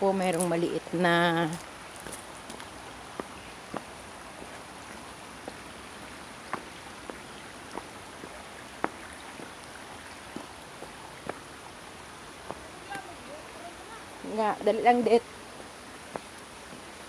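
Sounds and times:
water drips and plinks: 0.0 - 15.2
stream water running: 0.0 - 17.0.

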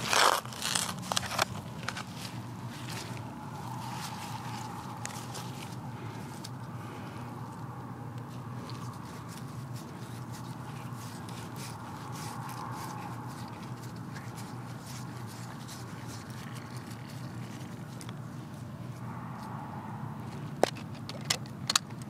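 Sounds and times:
digging scrapes and clicks: 0.0 - 7.6, 8.2 - 19.6
steady low hum: 0.0 - 22.0.

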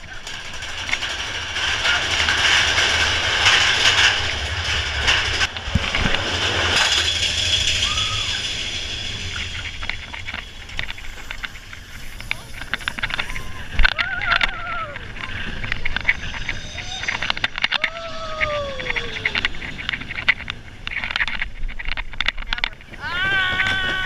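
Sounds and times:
roller coaster rushing on track: 0.0 - 24.0.

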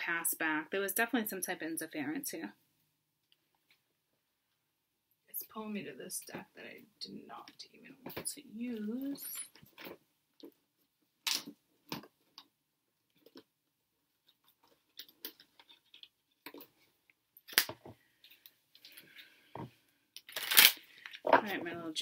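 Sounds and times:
cards shuffling: 20.2 - 21.2.

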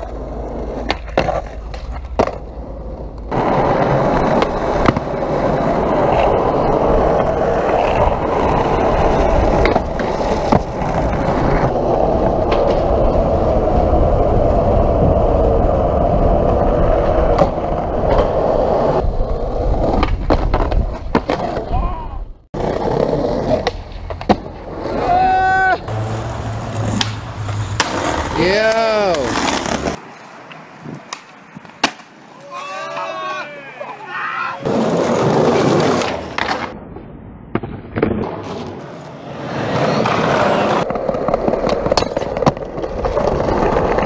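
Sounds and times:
skateboard clacks: 0.0 - 15.2, 22.6 - 32.1, 39.7 - 44.0
skateboard wheels rolling on concrete: 0.0 - 44.0.

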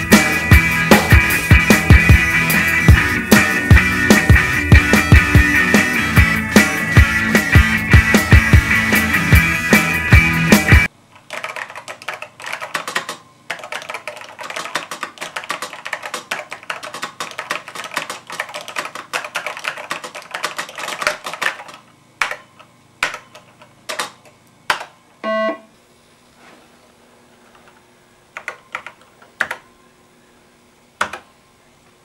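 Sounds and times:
rapid typing on keyboard: 11.2 - 22.4, 28.4 - 29.6
short buzzy beep: 25.2 - 25.7.

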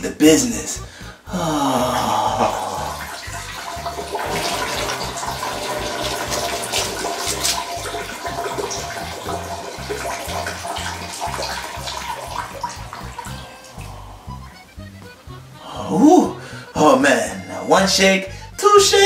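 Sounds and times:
person urinating into toilet: 1.5 - 14.7.

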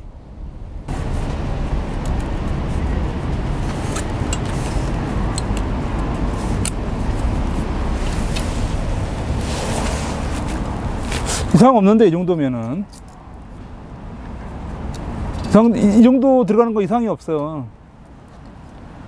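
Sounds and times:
low background rumble: 0.0 - 11.6.

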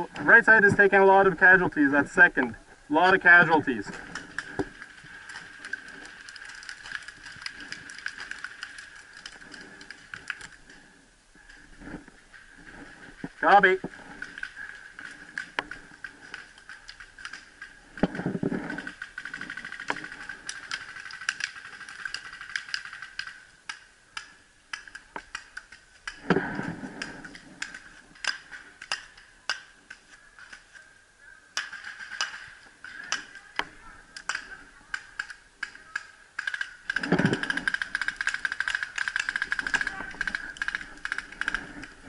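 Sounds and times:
paintball markers firing: 31.6 - 42.0.

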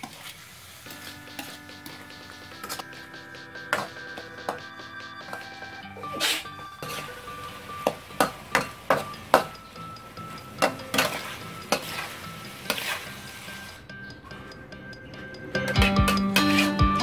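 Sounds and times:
spatula scraping and knocking wok: 0.9 - 17.0
faint sizzle: 6.0 - 9.4.

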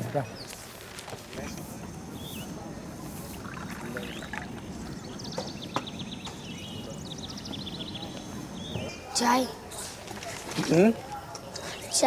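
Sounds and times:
birds chirping: 0.0 - 9.9, 10.6 - 12.0
low murmur: 1.2 - 11.7
high rapid chirps: 3.3 - 5.2.

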